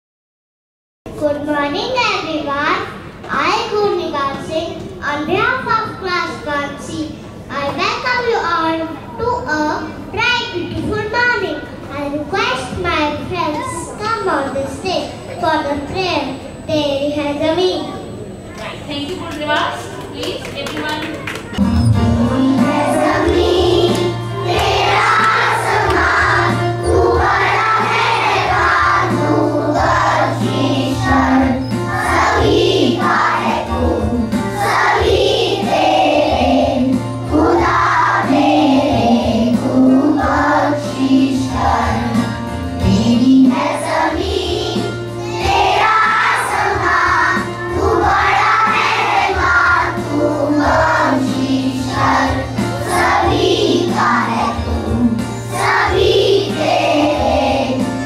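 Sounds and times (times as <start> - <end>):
children singing in unison: 22.3 - 57.9.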